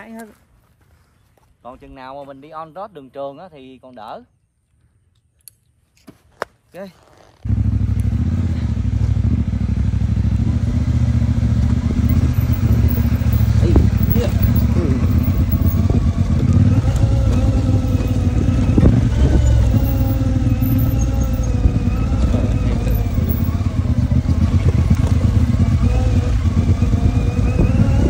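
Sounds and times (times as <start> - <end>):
motorcycle engine rumbling: 7.4 - 28.0.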